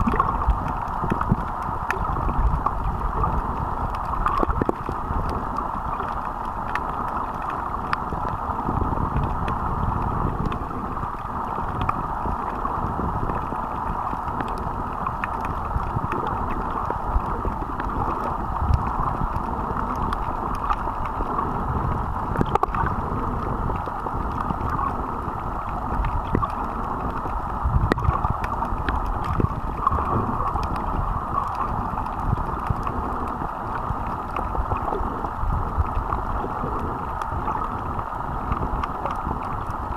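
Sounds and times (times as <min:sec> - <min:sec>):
muffled underwater water rush: 0:00.0 - 0:39.9.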